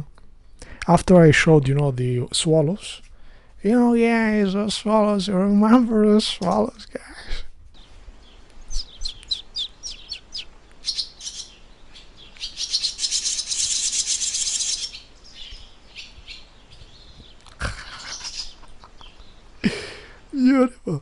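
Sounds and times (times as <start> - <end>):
swallows chirping and twittering: 7.8 - 19.6.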